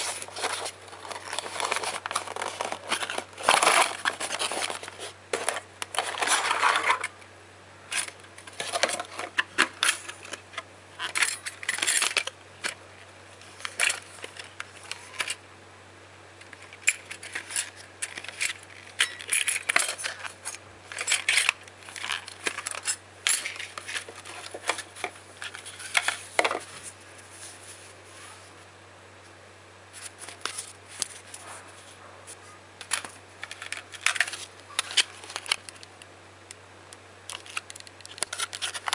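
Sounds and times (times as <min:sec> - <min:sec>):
cardboard box rustling: 0:00.0 - 0:07.0.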